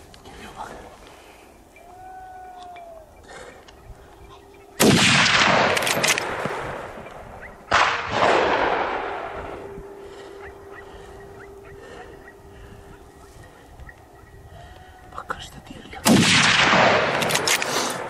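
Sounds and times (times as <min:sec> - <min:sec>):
gunshots echoing off hills: 0:04.8 - 0:13.2, 0:16.0 - 0:18.0.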